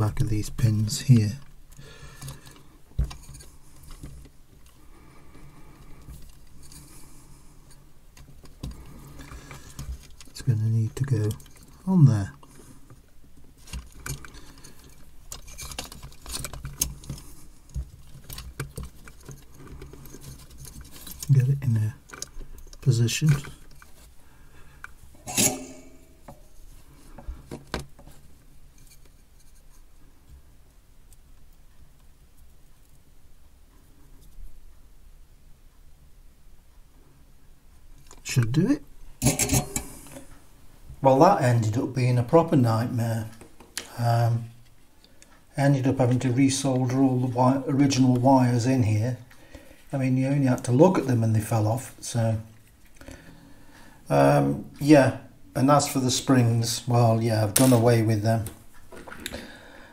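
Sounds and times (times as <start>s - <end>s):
light rubbing and scraping: 0.0s - 30.1s, 38.1s - 53.0s
low steady hum: 0.0s - 59.9s
fingers handling wires clicking: 8.1s - 24.0s.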